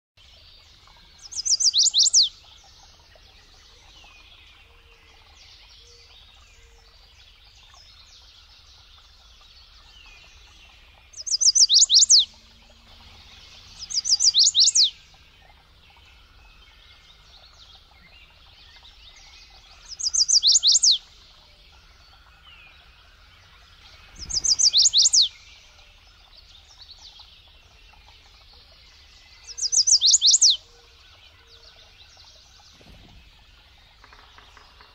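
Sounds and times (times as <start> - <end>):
warbler singing high sharp notes: 1.2 - 2.7, 10.1 - 15.3, 15.9 - 25.8, 29.0 - 30.6.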